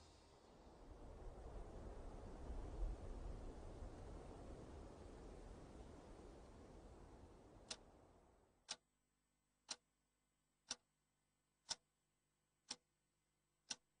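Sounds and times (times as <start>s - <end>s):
faint hiss: 0.0s - 8.8s.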